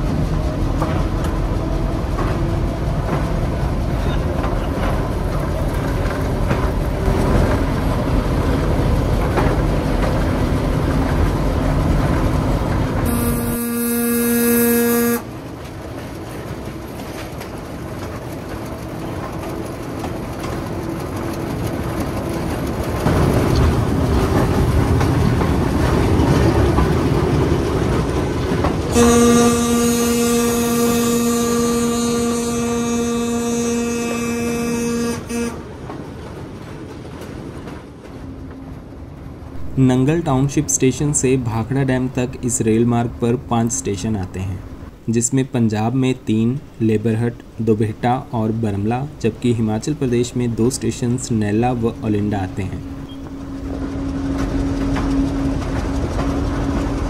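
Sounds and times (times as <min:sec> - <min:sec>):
train engine and wheels rumbling: 0:00.0 - 0:57.0
train horn: 0:13.0 - 0:15.4, 0:28.9 - 0:35.7, 0:52.8 - 0:57.0.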